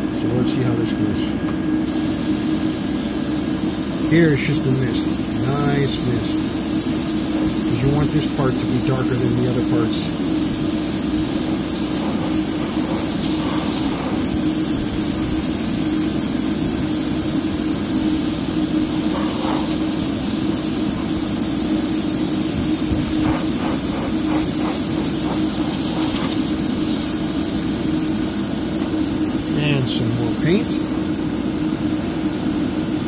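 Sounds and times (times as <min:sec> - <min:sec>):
airbrush compressor hum: 0:01.7 - 0:33.0
airbrush hissing: 0:01.9 - 0:33.0.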